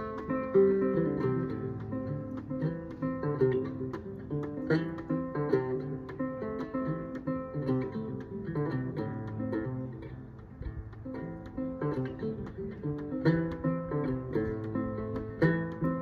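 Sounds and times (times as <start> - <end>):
banjo quick plucked notes: 0.0 - 16.0.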